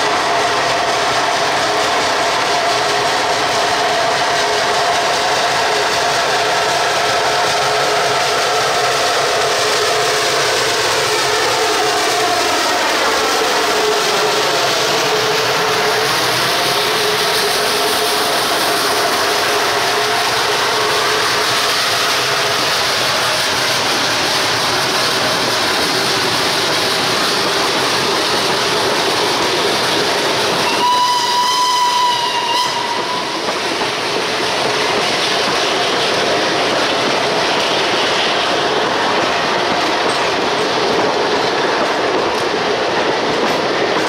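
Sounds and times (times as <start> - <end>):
steam locomotive passing: 0.0 - 44.0
high train whistle: 30.6 - 33.5.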